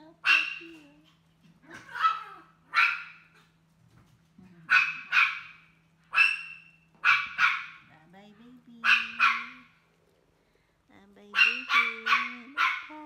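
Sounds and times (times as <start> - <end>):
dog barking: 0.2 - 0.8, 1.8 - 3.4, 4.7 - 7.9, 8.8 - 9.7, 11.4 - 13.0.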